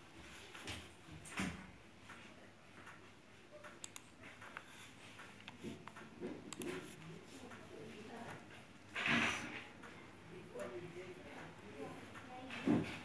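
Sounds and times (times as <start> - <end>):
computer mouse clicks: 3.6 - 7.7.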